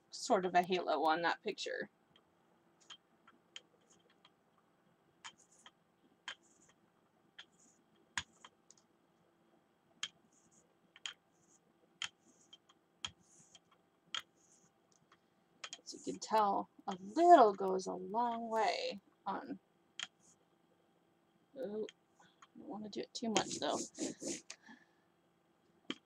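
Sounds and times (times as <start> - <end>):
faint clicks and taps: 2.1 - 8.9, 9.9 - 17.7, 20.0 - 20.4.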